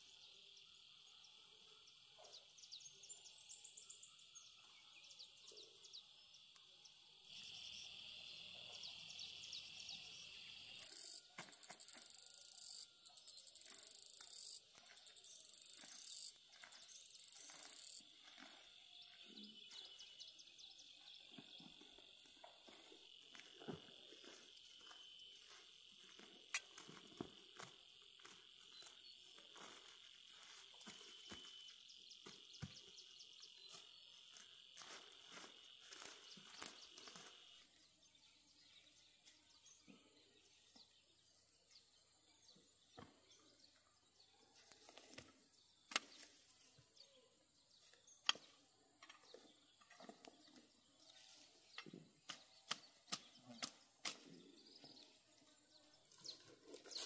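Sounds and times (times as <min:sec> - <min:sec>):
high-pitched insect drone: 0:02.9 - 0:37.8
sharp ticks: 0:10.8 - 0:14.7.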